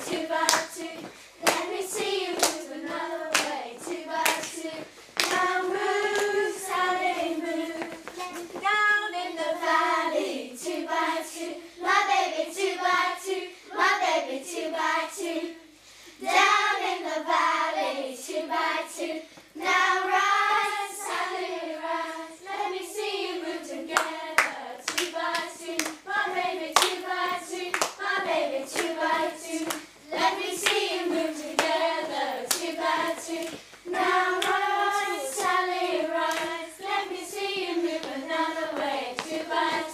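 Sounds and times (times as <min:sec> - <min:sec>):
sharp hand claps: 0:00.0 - 0:01.7, 0:02.4 - 0:02.6, 0:03.3 - 0:03.6, 0:04.2 - 0:04.6, 0:05.2 - 0:05.4, 0:24.0 - 0:26.0, 0:26.8 - 0:27.0, 0:27.7 - 0:28.0
voices singing a clapping song: 0:00.0 - 0:39.9.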